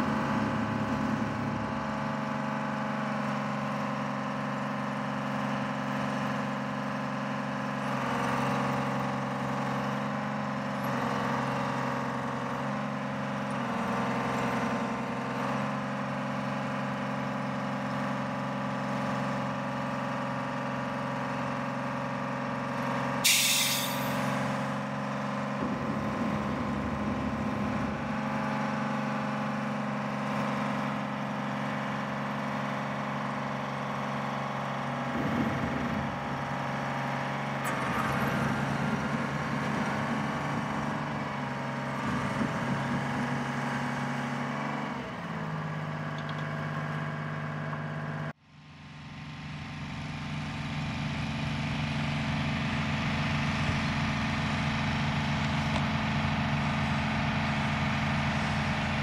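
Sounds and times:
crane diesel engine running: 0.0 - 59.0
loud air hiss: 23.2 - 24.3.

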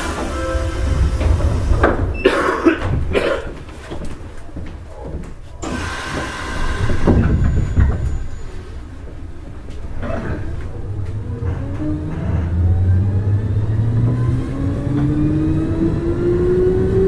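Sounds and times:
train motor hum with rising tones: 0.0 - 2.2, 10.0 - 17.0
sliding doors thudding shut: 0.0 - 4.3, 5.6 - 8.3.

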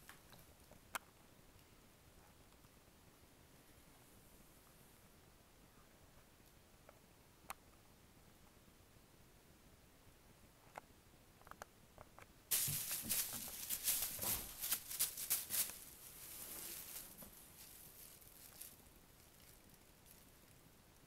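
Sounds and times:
plastic bag crinkling: 12.5 - 20.6.

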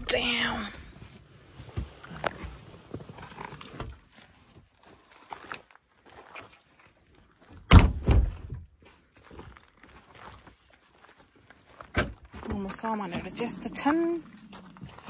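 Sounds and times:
faint rustling and handling: 0.9 - 7.6.

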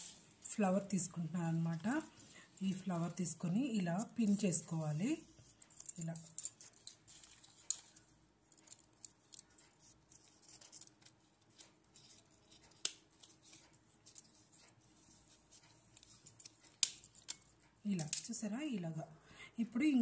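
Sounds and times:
light paper rustling: 1.5 - 17.4.

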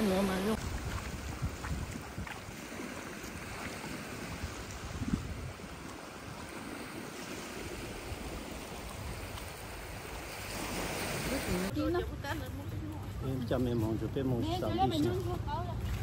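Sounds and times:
sea surf washing onto beach: 0.0 - 11.8
wind rumbling on microphone: 0.4 - 11.8.

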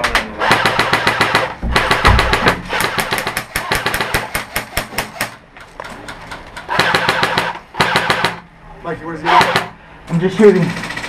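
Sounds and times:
airsoft guns firing: 0.4 - 5.4, 6.6 - 8.4, 9.3 - 9.8.

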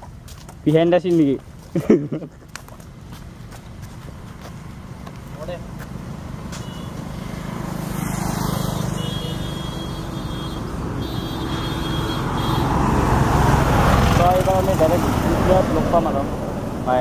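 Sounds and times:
motor scooter engine: 3.8 - 17.0.

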